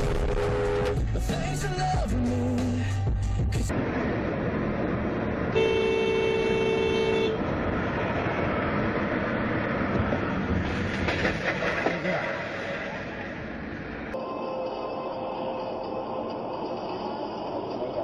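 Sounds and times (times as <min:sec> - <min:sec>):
car horn blast: 0:00.0 - 0:01.0, 0:05.5 - 0:07.4
road and cabin noise: 0:00.0 - 0:18.0.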